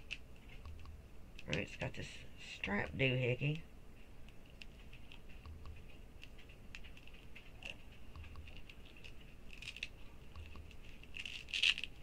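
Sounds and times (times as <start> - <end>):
fingers fiddling with a strap: 4.2 - 12.0.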